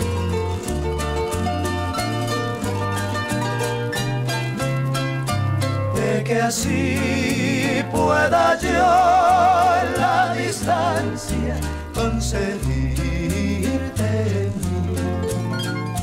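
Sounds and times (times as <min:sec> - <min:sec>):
harp and guitars playing folk song: 0:00.0 - 0:16.0
voices singing held notes: 0:05.9 - 0:14.7.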